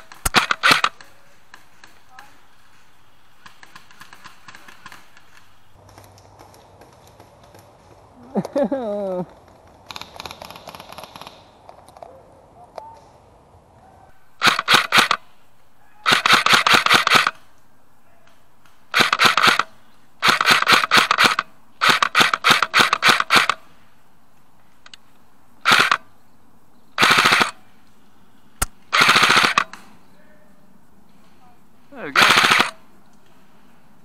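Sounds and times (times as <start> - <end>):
airsoft rifle firing bursts: 0.0 - 2.0, 3.4 - 5.5, 14.4 - 15.2, 16.0 - 17.4, 18.9 - 23.6, 25.6 - 26.0, 27.0 - 27.6, 28.9 - 29.8, 32.0 - 32.8.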